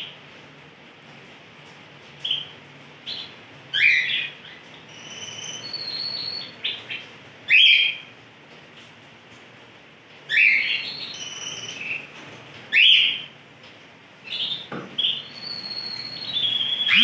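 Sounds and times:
canary singing chirps and trills: 2.2s - 8.1s, 10.3s - 13.3s, 14.2s - 17.0s.

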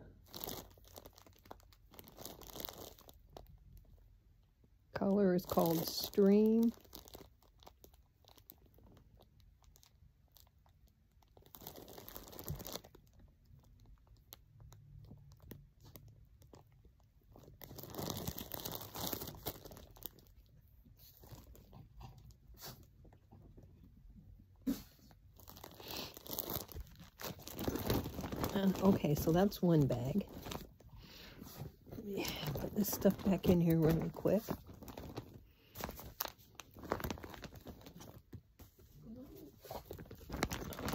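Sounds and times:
packaging rustling: 0.2s - 3.5s, 6.1s - 9.0s, 11.2s - 14.3s, 17.3s - 21.7s, 25.4s - 40.9s.

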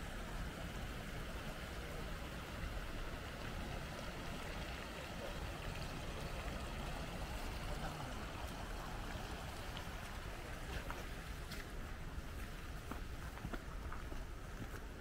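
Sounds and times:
water flowing in a stream: 0.0s - 15.0s.

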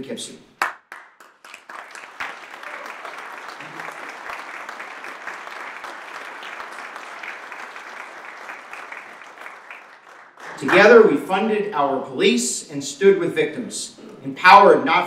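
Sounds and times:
audience applauding: 0.6s - 11.2s.

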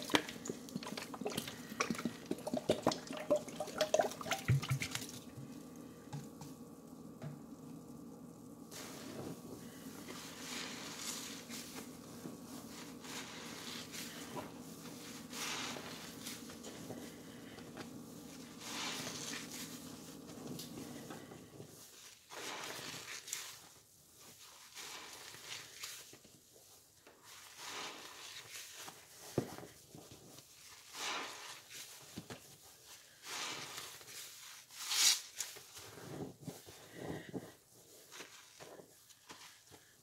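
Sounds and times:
low steady hum: 0.0s - 26.6s
wet sponges being squeezed: 0.0s - 40.0s.

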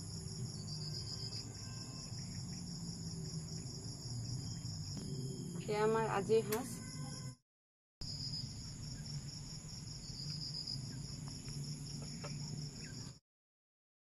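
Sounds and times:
crickets chirping: 0.0s - 7.4s, 8.0s - 13.2s
low hum: 2.2s - 6.5s.

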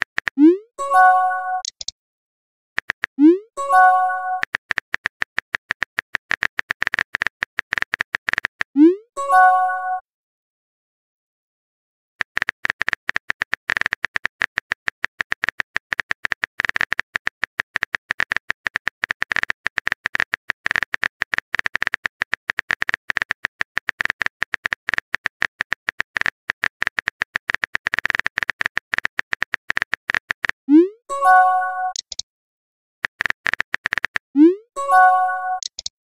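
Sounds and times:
keyboard typing clicks: 0.0s - 1.9s, 2.8s - 8.8s, 31.2s - 32.2s, 33.0s - 35.9s.

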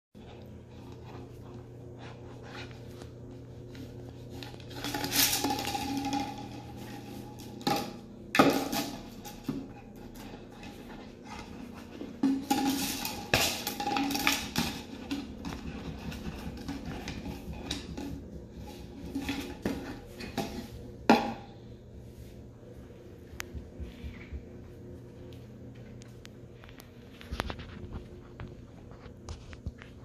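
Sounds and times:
plastic bottle clattering on tile: 4.8s - 6.7s, 12.2s - 18.1s.

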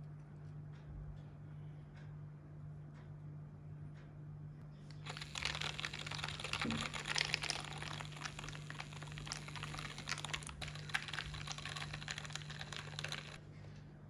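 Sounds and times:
milk frother whisking: 4.9s - 13.4s.

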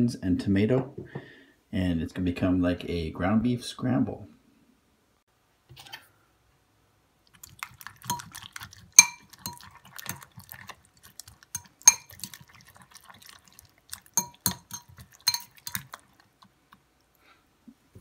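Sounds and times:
fork clinking in ceramic bowl: 7.6s - 12.6s, 14.0s - 16.2s.

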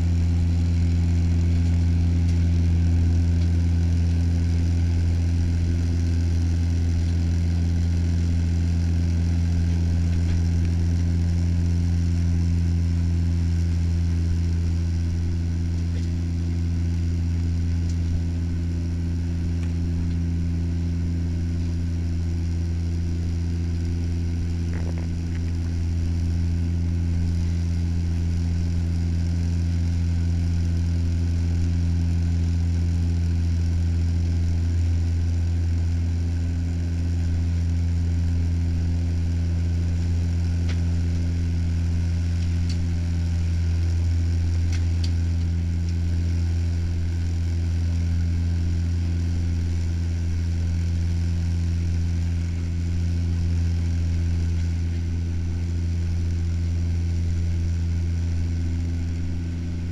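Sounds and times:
airliner propellers and engines drone: 0.0s - 59.9s.

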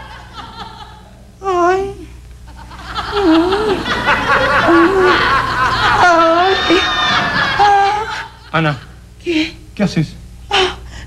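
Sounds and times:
studio audience laughter: 0.0s - 1.1s, 2.5s - 8.8s.

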